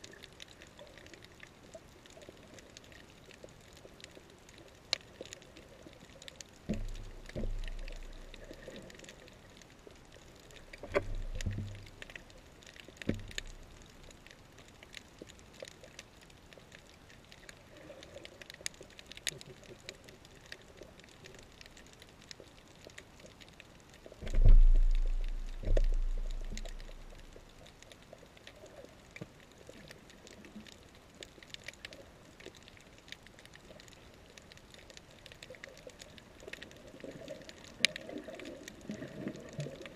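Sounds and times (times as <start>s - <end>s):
underwater clicking crackle: 0.0s - 39.9s
low underwater booming surges: 6.7s - 8.3s, 10.9s - 12.0s, 24.2s - 27.4s.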